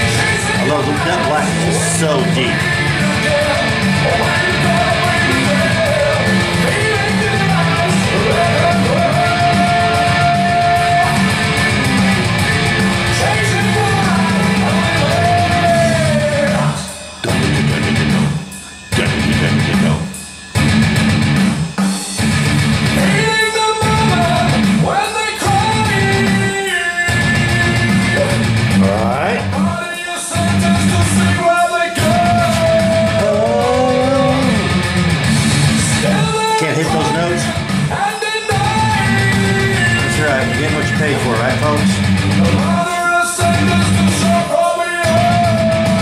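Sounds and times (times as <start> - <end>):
rock song with singing and guitar: 0.0 - 46.0.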